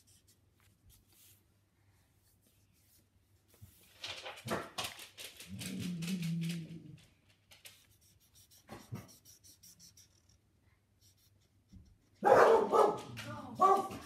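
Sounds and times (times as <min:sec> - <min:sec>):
marker scratching on paper: 0:07.7 - 0:12.6
dog barking: 0:12.2 - 0:14.0.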